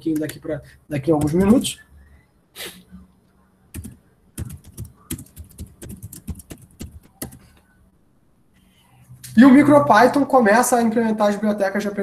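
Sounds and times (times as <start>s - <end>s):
computer keyboard typing: 0.0s - 0.4s, 1.0s - 1.7s, 3.7s - 7.6s.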